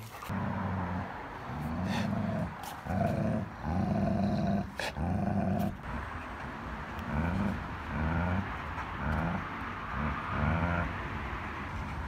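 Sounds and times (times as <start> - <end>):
dog growling: 0.3 - 5.8, 7.0 - 11.0.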